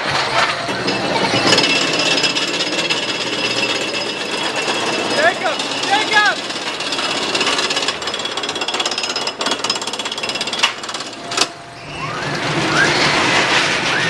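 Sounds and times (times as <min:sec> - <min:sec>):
sharp clacks: 0:00.0 - 0:11.6
roller coaster clattering on track: 0:00.0 - 0:14.0
high squeals: 0:11.6 - 0:14.0.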